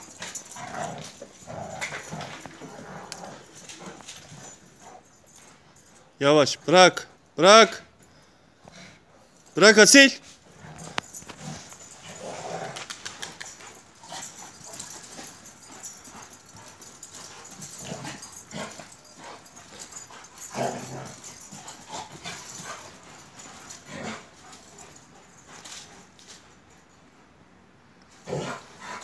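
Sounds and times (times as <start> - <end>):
dogs whining and grumbling: 10.5 - 26.0.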